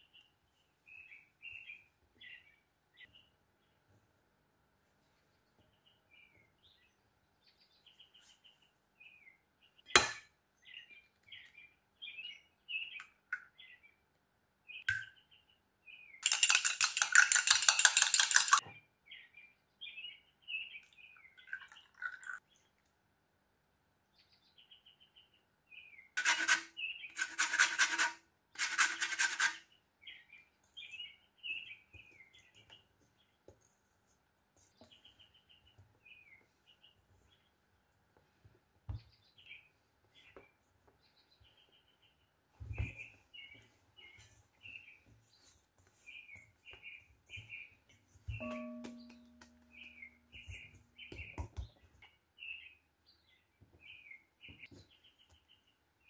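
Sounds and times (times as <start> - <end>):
small birds chirping: 0.0 - 4.0, 5.0 - 10.0, 10.6 - 22.8, 24.1 - 27.2, 29.7 - 56.0
utensil scraping glass bowl: 26.2 - 29.6.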